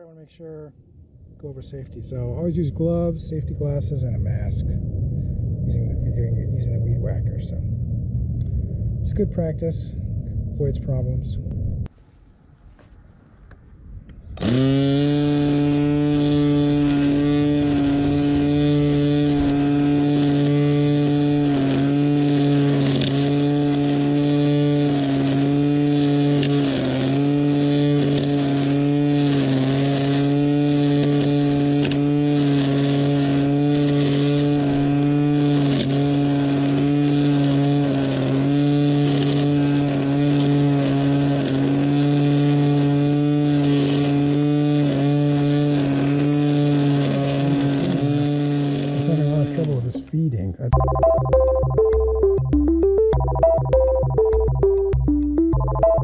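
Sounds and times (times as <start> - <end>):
string trimmer motor whine: 14.3 - 49.8.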